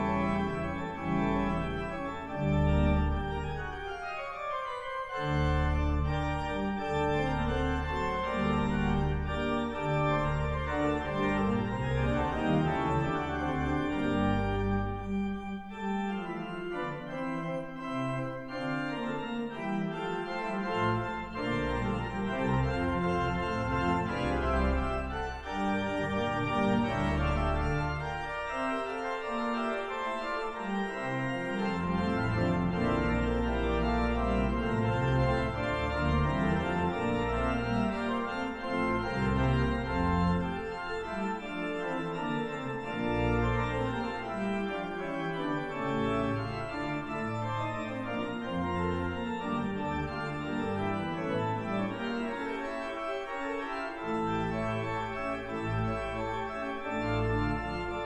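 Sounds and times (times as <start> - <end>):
pipe organ playing classical piece: 0.0 - 58.0.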